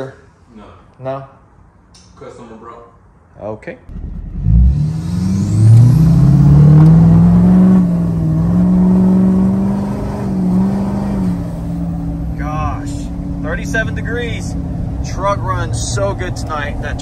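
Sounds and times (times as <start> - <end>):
diesel engine accelerating: 3.9 - 17.0.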